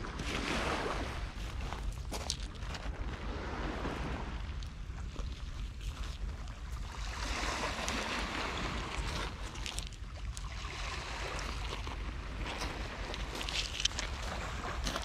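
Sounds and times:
wind on microphone: 0.0s - 15.0s
surf washing on beach: 3.1s - 4.6s, 6.9s - 9.8s.

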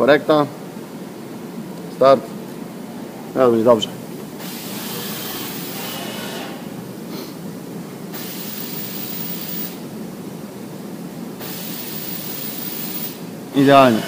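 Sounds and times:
milling machine hissing: 4.4s - 6.7s, 8.1s - 9.8s, 11.4s - 14.0s.

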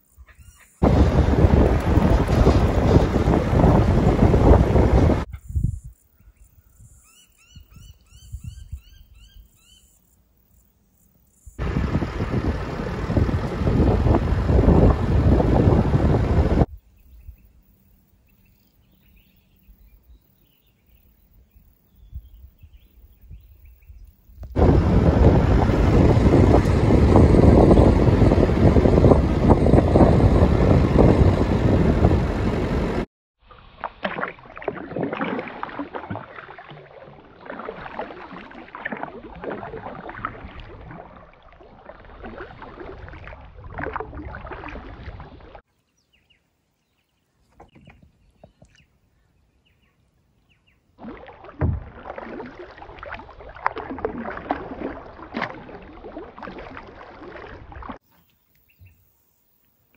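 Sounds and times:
paddle strokes splashing: 0.8s - 5.3s, 11.6s - 16.7s, 24.4s - 45.6s, 51.0s - 58.9s
wind noise: 0.8s - 6.0s, 7.6s - 9.4s, 11.6s - 17.4s, 22.0s - 33.1s, 42.1s - 45.6s, 51.6s - 58.0s
vehicle noise: 11.6s - 16.7s.

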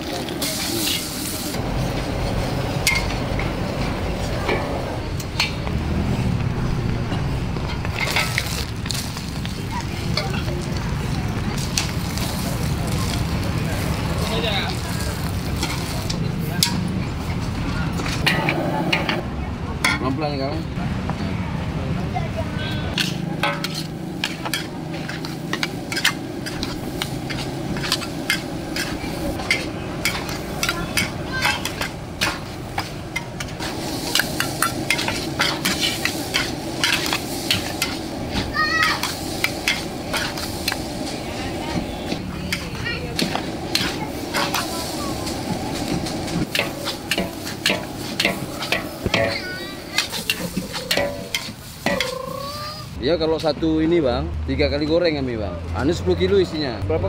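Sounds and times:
metal ladles scraping a wok: 0.0s - 6.3s, 7.1s - 10.9s, 11.6s - 19.2s, 22.8s - 53.0s
food sizzling: 0.0s - 19.2s, 22.9s - 53.0s
spatula clanking against wok: 22.9s - 40.9s, 46.5s - 52.3s.

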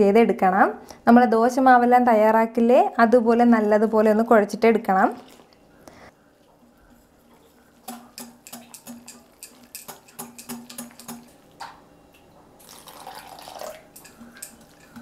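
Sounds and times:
wet batter swishing: 4.9s - 5.6s, 6.6s - 11.6s
whisk clicking against glass bowl: 7.8s - 11.4s, 13.9s - 15.0s.

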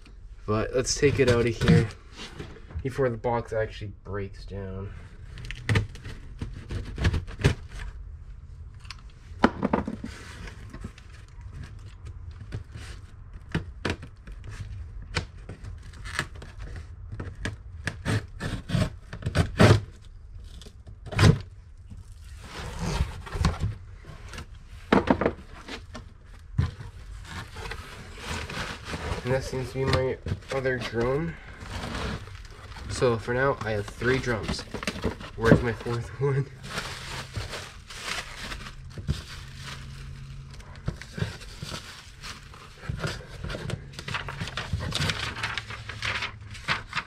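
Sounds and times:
cardboard scraping: 15.4s - 47.0s.

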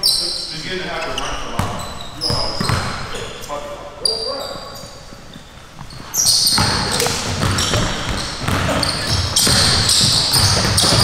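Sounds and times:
basketballs bouncing on gym floor: 1.2s - 3.2s, 5.8s - 11.0s
high-pitched squeaks: 4.0s - 11.0s.

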